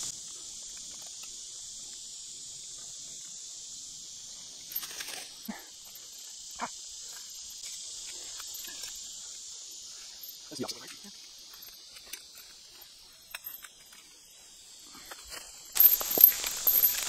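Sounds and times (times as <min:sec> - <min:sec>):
insects droning: 0:00.0 - 0:17.0
metallic clinks on wire: 0:04.6 - 0:14.2, 0:15.1 - 0:17.0.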